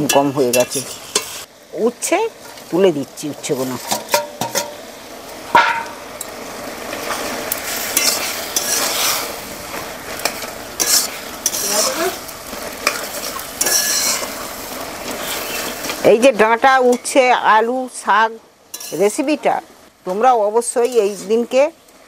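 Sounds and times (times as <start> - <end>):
metal spatula scraping pan: 0.0 - 1.5, 7.7 - 9.4, 10.2 - 14.5, 18.7 - 19.2, 20.8 - 21.5
vegetables sizzling: 0.0 - 22.0
spatula clanking on pan: 3.9 - 4.8, 5.6 - 6.0, 10.2 - 12.0, 12.8 - 14.4.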